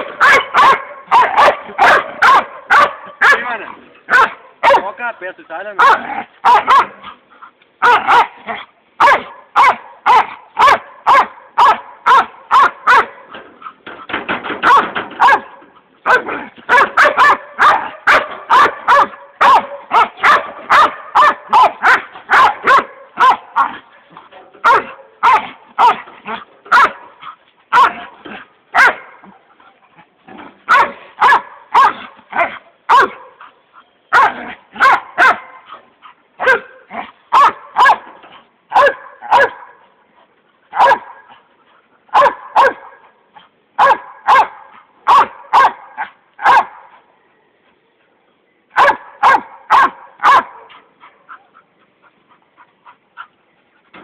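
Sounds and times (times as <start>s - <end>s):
dogs barking excitedly: 0.0s - 47.1s, 48.7s - 54.0s.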